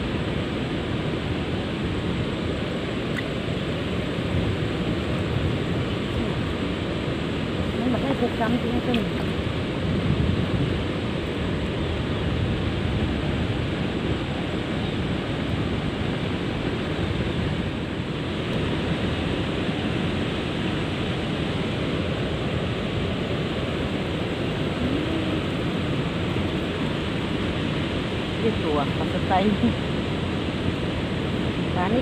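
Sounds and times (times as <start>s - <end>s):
water rushing over weir: 0.0s - 32.0s.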